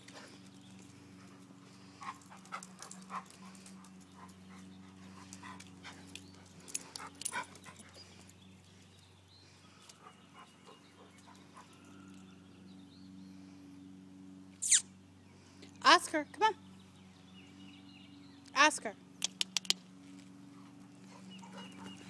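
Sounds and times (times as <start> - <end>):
dog panting: 0.0 - 8.3, 20.5 - 22.0.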